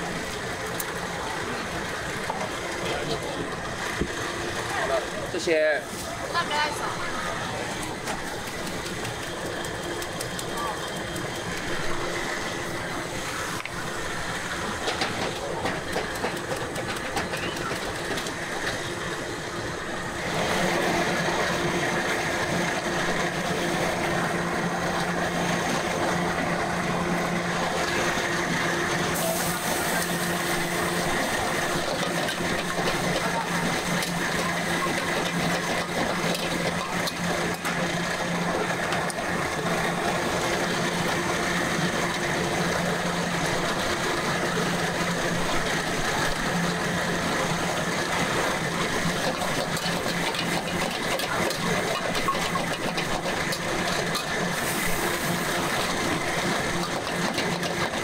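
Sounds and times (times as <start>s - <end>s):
machine-like hum: 0.0s - 58.0s
cooking hiss: 29.1s - 34.8s, 51.4s - 58.0s.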